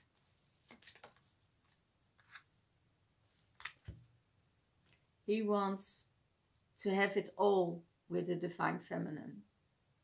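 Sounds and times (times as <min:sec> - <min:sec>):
cards rustling and clicking: 0:00.2 - 0:02.5, 0:03.4 - 0:04.0.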